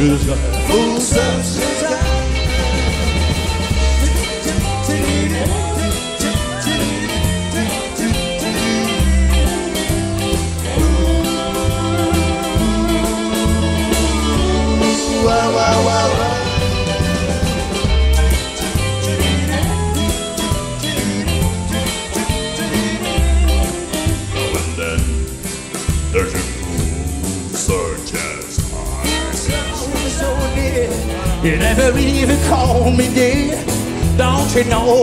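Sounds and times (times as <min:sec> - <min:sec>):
bass guitar: 0:00.0 - 0:35.0
lead electric guitar: 0:00.0 - 0:35.0
steady drum beat: 0:00.0 - 0:35.0.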